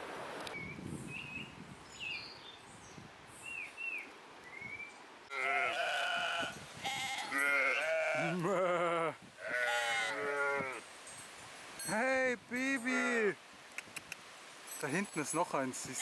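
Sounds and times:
sheep bleating: 5.3 - 10.8.

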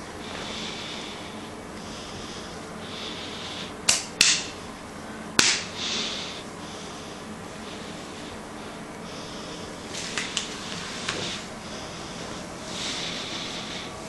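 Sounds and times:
hand smacking latex: 3.9 - 4.5, 5.4 - 5.7.

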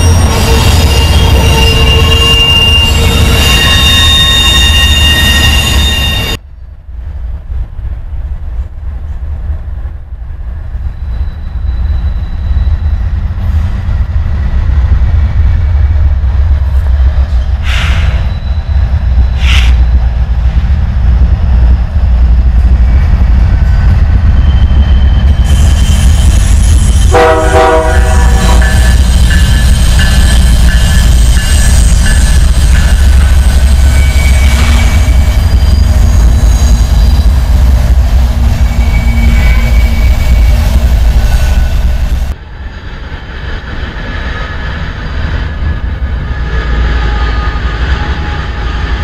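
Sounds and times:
train wheel squeal: 0.0 - 6.4, 10.6 - 15.1, 16.7 - 20.2, 22.8 - 42.3, 43.4 - 49.0
train cars rolling past: 0.0 - 49.0
train horn blast: 27.1 - 28.9.

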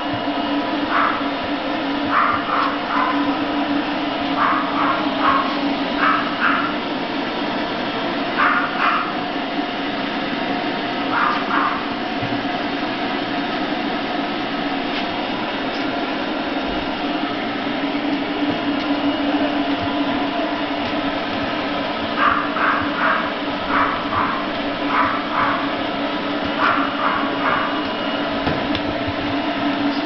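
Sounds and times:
pet dryer whirring: 0.0 - 30.0.

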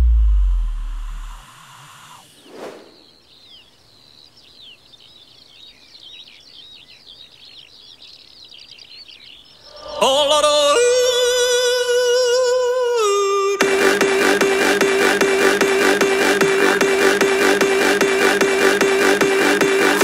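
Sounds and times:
deep electronic bass hit: 0.0 - 1.4
short whoosh: 0.0 - 3.2
small birds chirping: 2.0 - 11.6.

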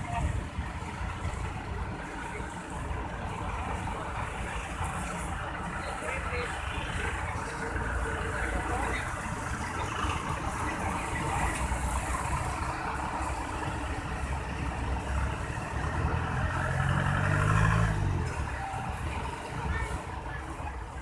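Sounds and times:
bus diesel engine running: 0.0 - 21.0
engine revving up: 15.7 - 18.6.

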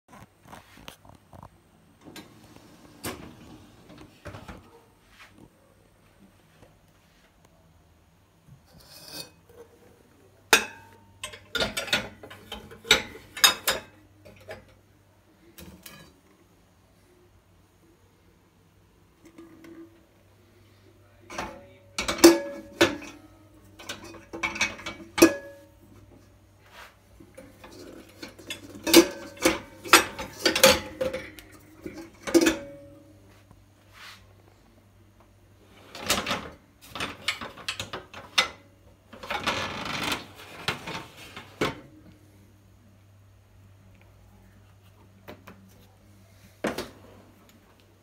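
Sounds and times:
pots clanking: 8.6 - 14.8, 15.6 - 16.3, 21.3 - 26.3, 27.2 - 33.1, 35.8 - 42.0
pots rattling in a rack: 8.6 - 14.9, 15.6 - 16.3, 21.2 - 26.2, 27.1 - 33.1, 35.7 - 42.0.

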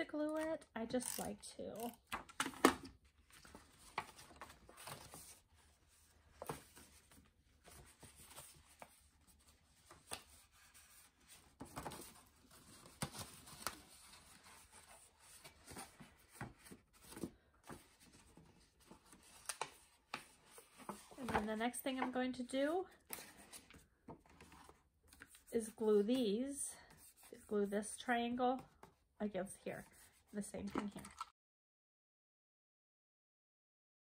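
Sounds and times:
paper rustling and crinkling: 3.0 - 22.1, 29.8 - 31.3.

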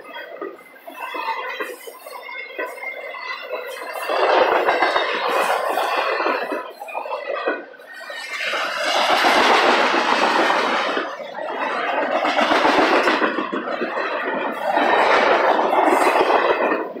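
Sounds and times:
freight train wheels on rail: 0.0 - 17.0.

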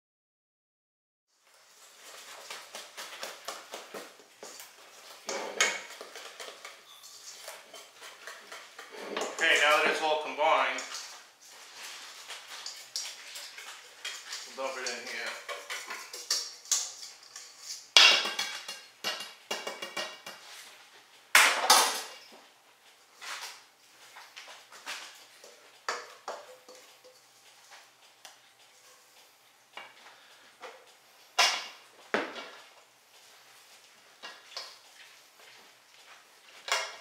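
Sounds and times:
stirring batter: 1.5 - 20.5
spatula scraping metal bowls: 4.6 - 20.6, 25.2 - 27.7.

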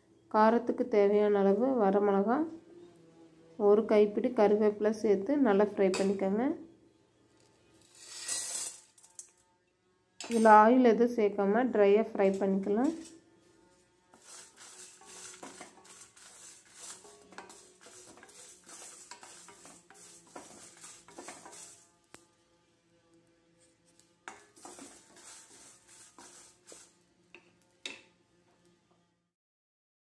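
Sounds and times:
spatula scraping spices in steel pan: 7.9 - 9.0, 12.2 - 22.2, 23.6 - 28.0.

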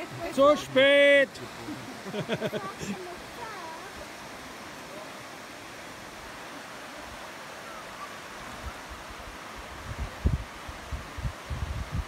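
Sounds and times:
river water rushing: 0.0 - 12.0
wind buffeting microphone: 8.6 - 12.0.

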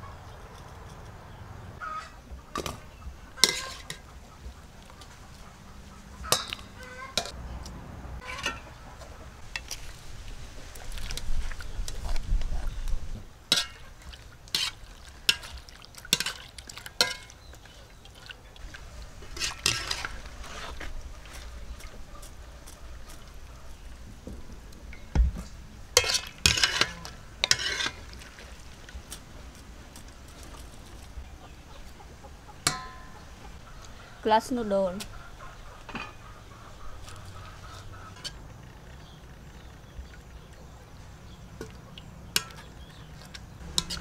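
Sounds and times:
utensils clinking on metal pots: 3.4 - 4.1, 6.2 - 7.4, 13.5 - 18.3, 19.3 - 20.2, 26.0 - 28.2, 32.6 - 33.3, 35.8 - 36.2, 42.3 - 44.0
scrapes: 18.8 - 24.2, 25.4 - 31.1.

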